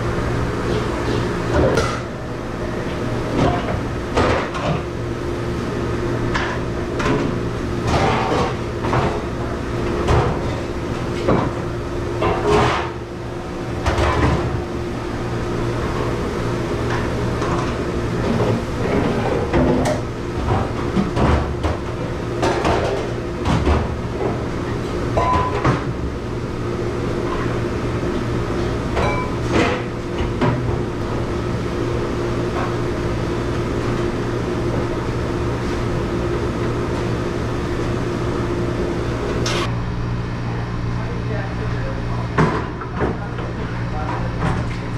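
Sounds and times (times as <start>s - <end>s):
machine hum: 0.0s - 42.4s
dishes clattering in a metal sink: 0.7s - 2.1s, 6.3s - 9.2s, 12.2s - 13.0s, 13.8s - 14.6s, 16.9s - 23.9s, 25.2s - 25.9s.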